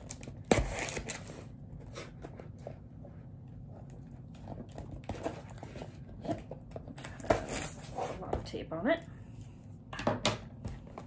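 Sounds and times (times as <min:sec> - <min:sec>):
scissors cutting cardboard: 0:00.0 - 0:02.6.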